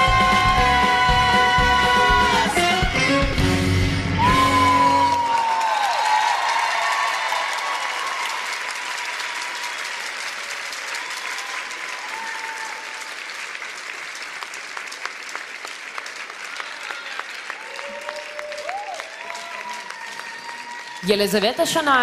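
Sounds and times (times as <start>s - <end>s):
audience applauding: 4.2s - 22.0s.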